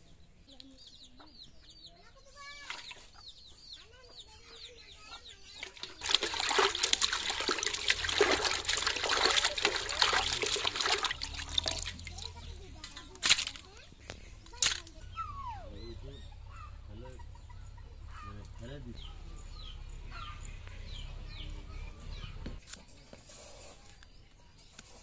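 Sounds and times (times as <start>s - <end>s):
birds chirping faintly: 0.0s - 25.0s
hands splashing water in metal basin: 5.6s - 13.7s, 14.5s - 14.9s.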